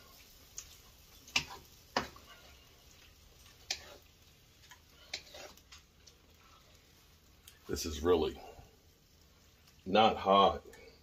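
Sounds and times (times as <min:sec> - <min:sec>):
faint sizzle: 0:00.0 - 0:11.0
utensil clicking against frying pan: 0:00.5 - 0:02.2, 0:03.6 - 0:04.0.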